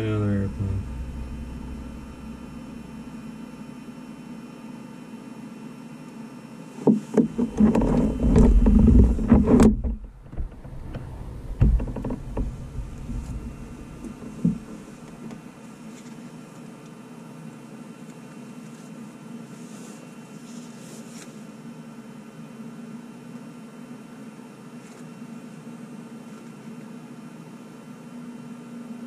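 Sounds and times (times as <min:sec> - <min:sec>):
weak thumps: 0:00.0 - 0:04.4, 0:06.9 - 0:15.4
aircraft engine cranking: 0:00.0 - 0:04.5, 0:07.3 - 0:15.5
faint steady hum: 0:00.0 - 0:29.0.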